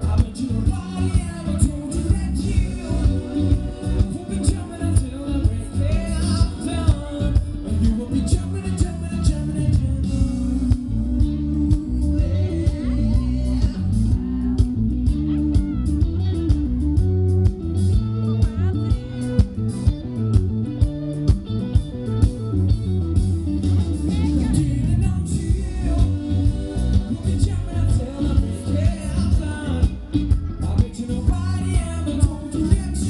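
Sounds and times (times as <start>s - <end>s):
man singing: 0.0s - 16.6s, 23.8s - 33.0s
guitar: 0.0s - 33.0s
heavy bass line: 0.0s - 33.0s
steady drum beat: 0.0s - 33.0s.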